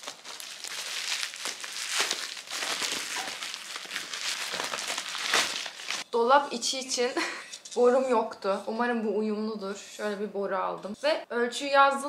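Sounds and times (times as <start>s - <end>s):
packing paper crinkling: 0.0s - 6.1s.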